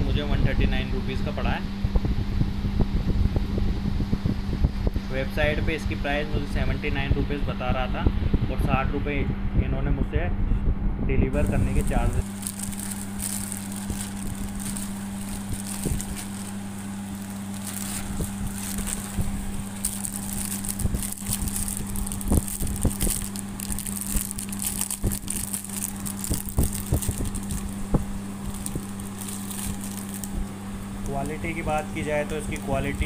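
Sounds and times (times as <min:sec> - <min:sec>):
steady low hum: 0:00.0 - 0:33.0
plastic wrapping crinkling: 0:11.4 - 0:33.0.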